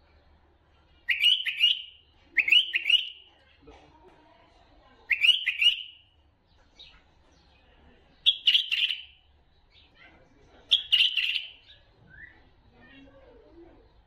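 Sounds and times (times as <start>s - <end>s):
bird chattering whistled song: 1.0s - 3.3s, 5.1s - 6.1s, 8.2s - 9.9s, 10.7s - 12.4s.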